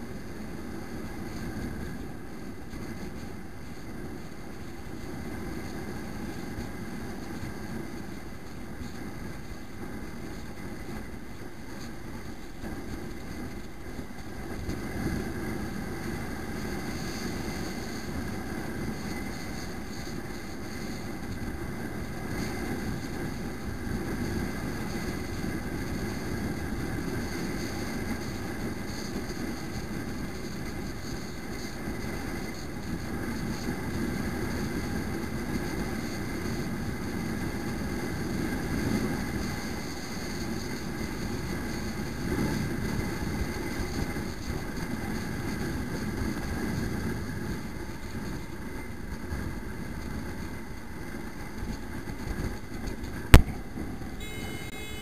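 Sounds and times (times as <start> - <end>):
road noise: 0.0 - 55.0
motorbike engine drone: 49.2 - 55.0.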